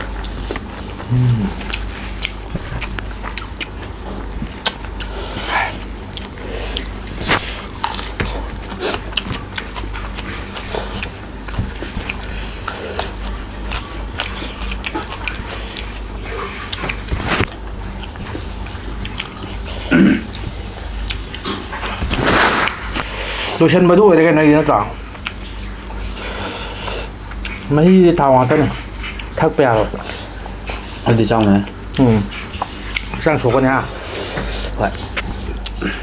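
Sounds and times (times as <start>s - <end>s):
people chewing food: 0.0s - 36.0s.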